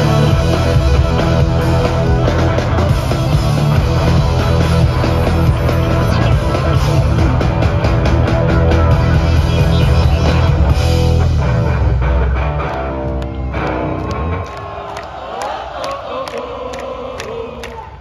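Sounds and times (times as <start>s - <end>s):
live rock band playing: 0.0s - 14.4s.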